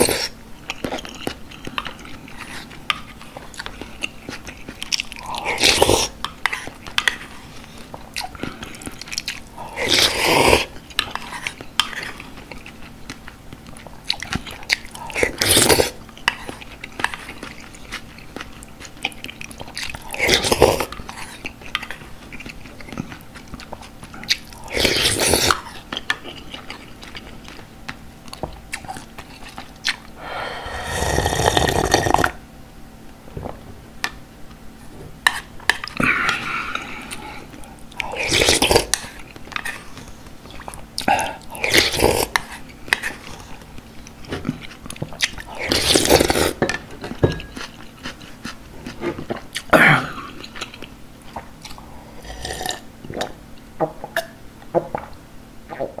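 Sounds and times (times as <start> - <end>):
chewing: 0.0 - 30.2, 35.3 - 56.0
slurping broth: 30.7 - 32.4, 38.0 - 39.1.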